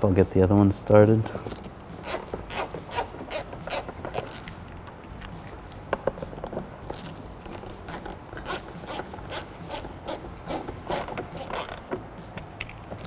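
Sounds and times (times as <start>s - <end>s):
socket ratchet clicking: 6.9s - 13.0s.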